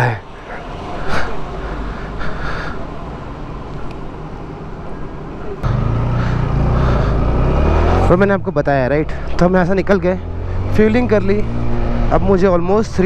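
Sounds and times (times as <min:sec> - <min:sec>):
motorcycle engine running: 0:05.6 - 0:08.2.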